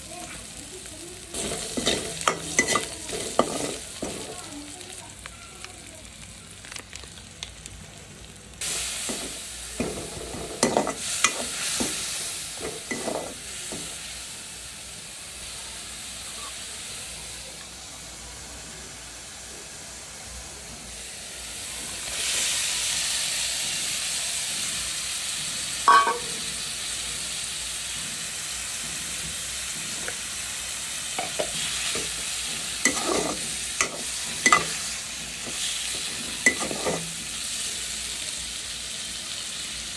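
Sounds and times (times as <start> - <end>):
food sizzling in hot oil: 0.0 - 39.9
metal spatula scraping a pan: 1.4 - 4.4, 12.6 - 13.4, 32.8 - 34.8, 35.4 - 37.1.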